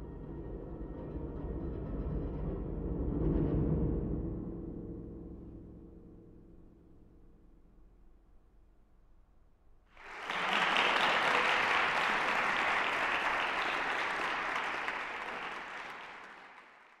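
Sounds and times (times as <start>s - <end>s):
audience applauding: 10.0s - 17.0s.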